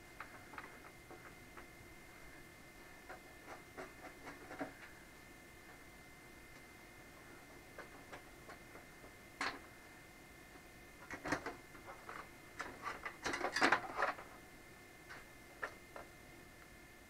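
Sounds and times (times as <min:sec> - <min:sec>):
metal clicks and clatter: 0:11.0 - 0:14.3.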